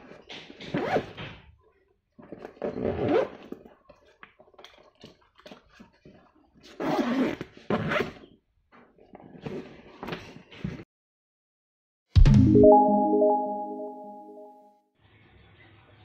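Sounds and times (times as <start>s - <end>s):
zipper on fabric bag: 6.8s - 8.2s.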